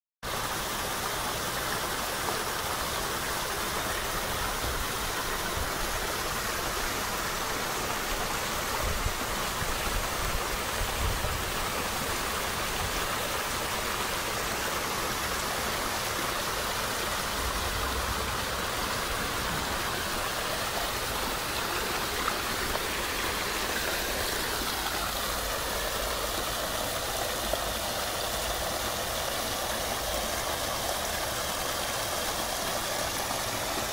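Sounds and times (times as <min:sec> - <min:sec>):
water splashing into pond: 0:00.3 - 0:33.9.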